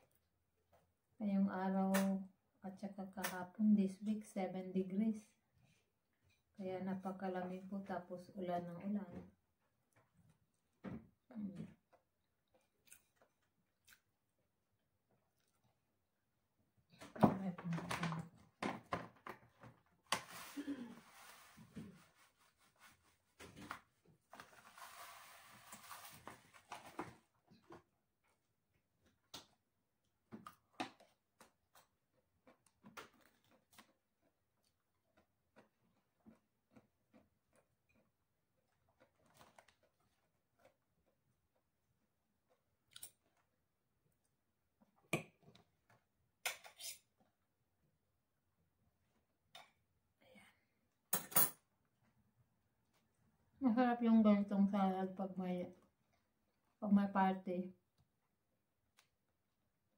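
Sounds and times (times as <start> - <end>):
tableware clicks and knocks: 51.2 - 51.6.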